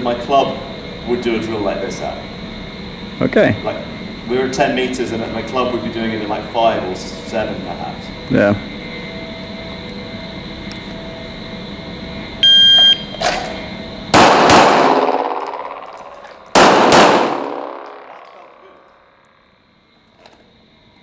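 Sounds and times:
shot timer beep: 0:12.4 - 0:13.1
pistol shots echoing indoors: 0:14.1 - 0:18.8.

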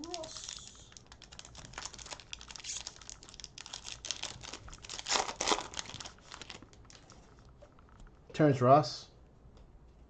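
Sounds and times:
cellophane wrapper crinkling: 0:00.0 - 0:07.5.

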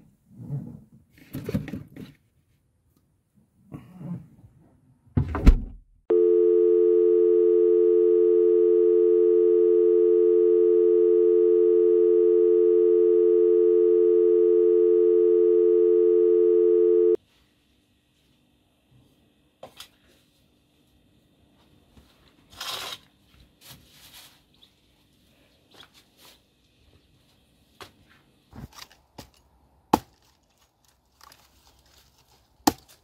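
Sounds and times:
telephone tone: 0:06.1 - 0:17.2.

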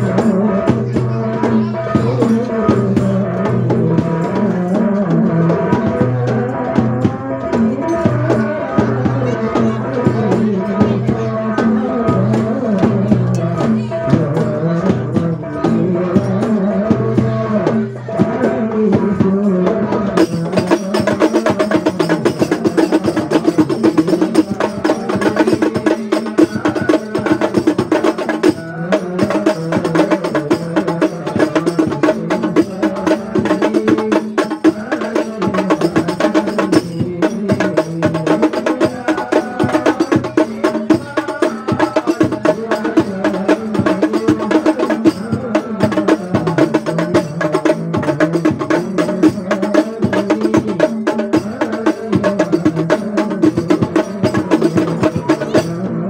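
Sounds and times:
hand drums playing fast rhythm: 0:00.0 - 0:56.0.

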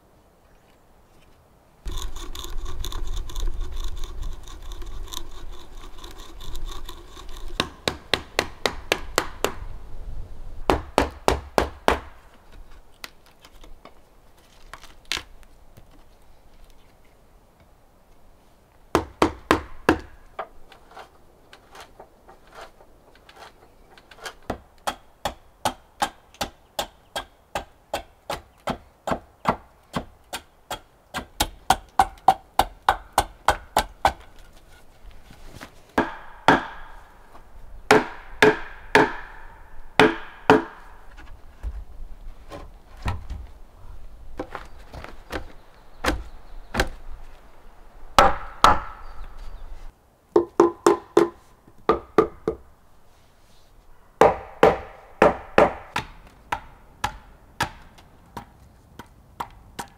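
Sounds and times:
hand auger grinding into wood: 0:01.9 - 0:08.0, 0:20.6 - 0:24.5
hatchet chopping wood: 0:06.9 - 0:09.6, 0:10.7 - 0:12.2, 0:18.9 - 0:20.2, 0:24.5 - 0:34.3, 0:36.0 - 0:37.1, 0:37.9 - 0:41.0, 0:46.0 - 0:47.0, 0:48.2 - 0:49.2, 0:50.4 - 0:52.6, 0:54.2 - 0:59.9.

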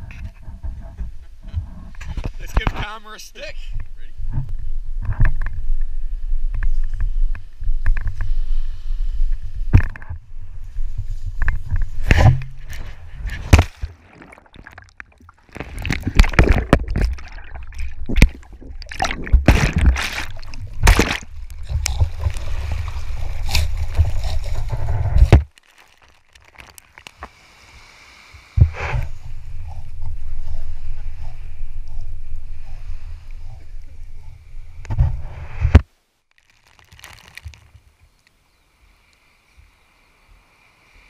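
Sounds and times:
seawater sloshing and splashing: 0:12.0 - 0:27.4
camera dragged through sand: 0:21.6 - 0:25.4, 0:34.3 - 0:35.9.

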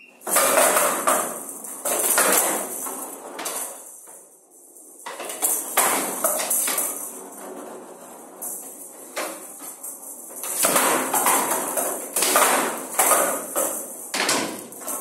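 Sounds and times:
rattling ball rolling on wood: 0:05.0 - 0:15.0.

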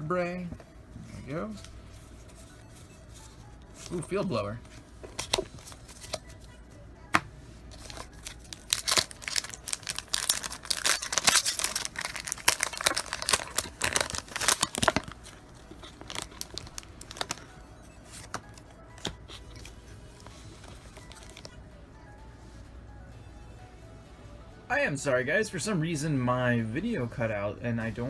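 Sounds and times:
foil wrapper crackling: 0:07.8 - 0:17.5.

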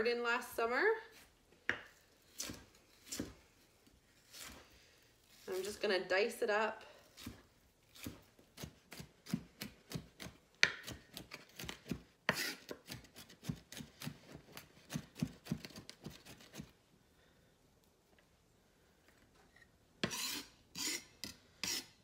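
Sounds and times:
knife chopping on wooden board: 0:01.7 - 0:03.4, 0:08.0 - 0:16.6.

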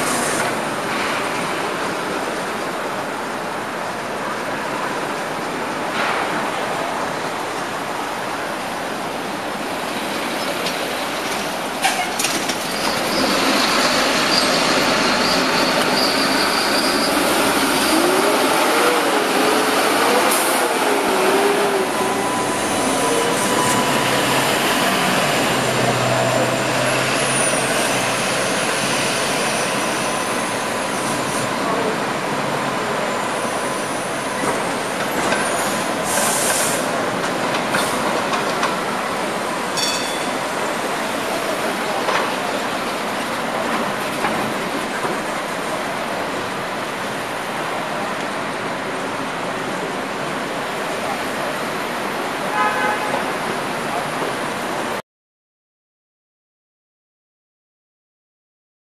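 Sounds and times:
passing streetcars and traffic: 0:00.0 - 0:55.0
high thin squeal: 0:11.8 - 0:17.4.

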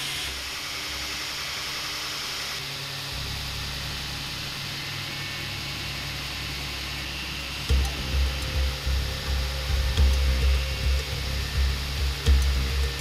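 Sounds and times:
belt grinder grinding hiss: 0:00.0 - 0:13.0
low motor hum: 0:02.6 - 0:13.0.

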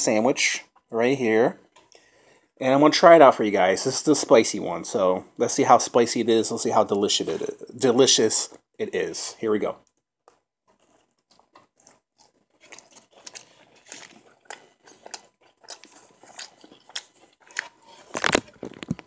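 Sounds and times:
chewing crunchy food: 0:10.3 - 0:19.0
wet mouth sounds: 0:11.2 - 0:18.4.

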